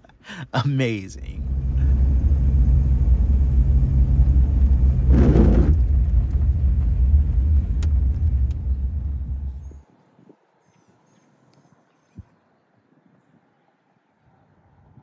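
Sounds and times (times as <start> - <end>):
engine and road rumble: 0.8 - 9.8
faint clicks: 7.4 - 9.7.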